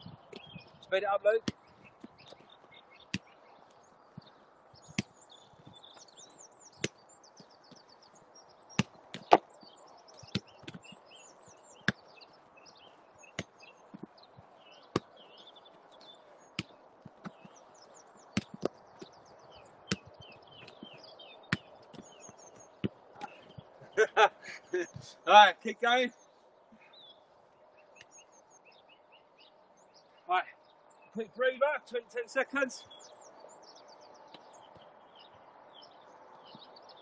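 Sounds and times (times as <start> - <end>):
birds chirping: 0.0 - 37.0
football being kicked: 10.2 - 10.9, 16.6 - 17.4, 18.4 - 18.7, 19.8 - 20.2, 21.5 - 22.1.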